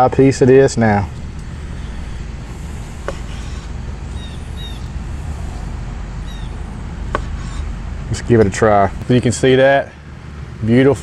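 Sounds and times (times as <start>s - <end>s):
low outdoor rumble: 0.0s - 11.0s
bird chirps: 1.1s - 6.8s.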